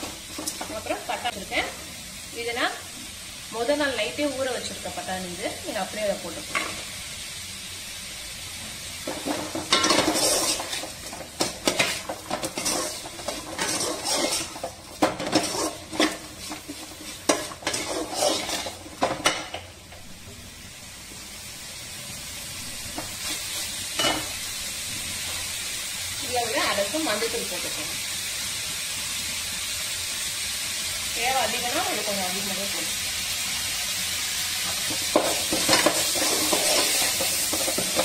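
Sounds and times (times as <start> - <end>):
vegetables sizzling in pan: 0.0 - 38.0
metal ladle scraping pan: 9.1 - 19.6, 35.1 - 38.0.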